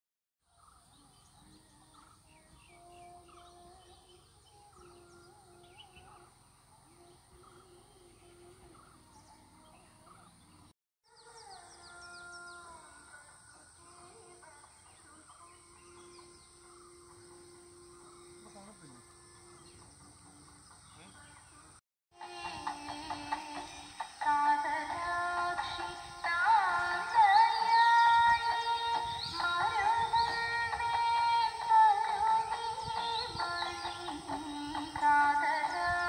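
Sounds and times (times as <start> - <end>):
birds chirping and trilling: 0.5 - 21.8, 22.6 - 36.0.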